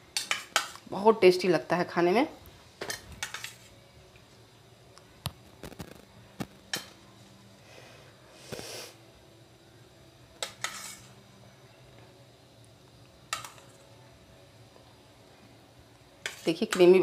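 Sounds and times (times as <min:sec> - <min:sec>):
metal spoon clinking on dishes: 0:00.1 - 0:00.8, 0:02.8 - 0:03.7, 0:10.4 - 0:11.1, 0:13.3 - 0:13.8, 0:16.2 - 0:17.0
spoon scraping: 0:02.9 - 0:03.8, 0:10.4 - 0:11.2, 0:16.2 - 0:17.0.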